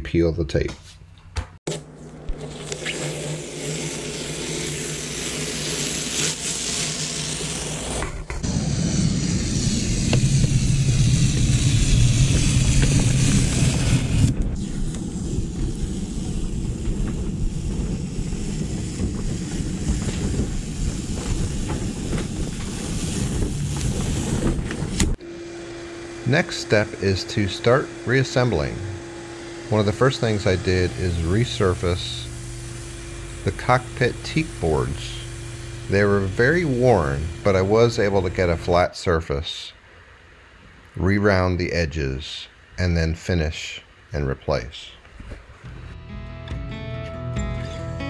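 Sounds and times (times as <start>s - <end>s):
masking tape peeling off: 1.7s - 25.2s
low outdoor rumble: 8.4s - 25.2s, 28.6s - 38.8s.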